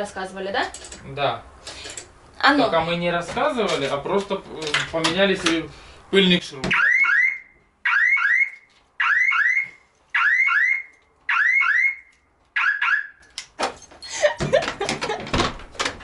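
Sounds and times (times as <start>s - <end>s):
car alarm chirps: 6.7s - 13.2s.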